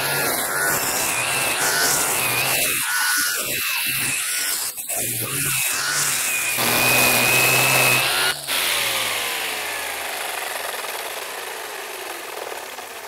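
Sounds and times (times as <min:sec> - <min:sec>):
brush cutter whining: 0:00.0 - 0:13.0.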